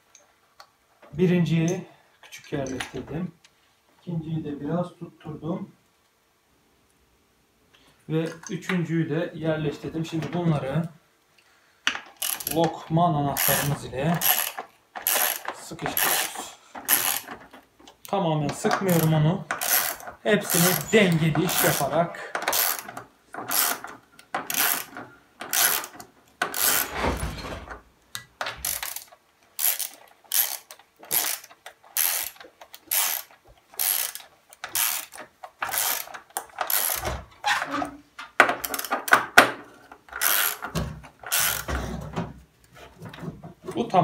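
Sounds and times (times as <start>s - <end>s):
ratchet wrench clicking: 12.2s - 12.6s, 13.4s - 16.3s, 16.9s - 17.3s, 18.9s - 20.8s, 21.5s - 23.9s, 24.5s - 26.9s, 28.6s - 37.0s, 40.2s - 40.7s, 41.3s - 41.7s.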